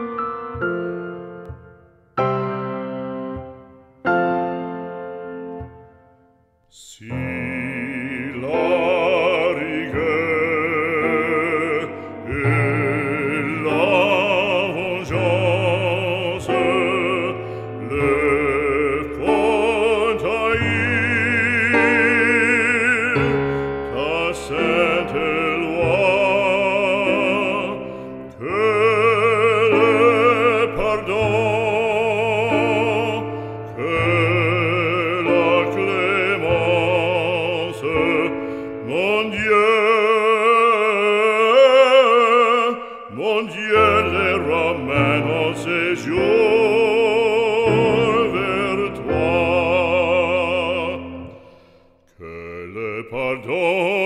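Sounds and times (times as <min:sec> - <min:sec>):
operatic singing: 0:03.3 - 0:54.0.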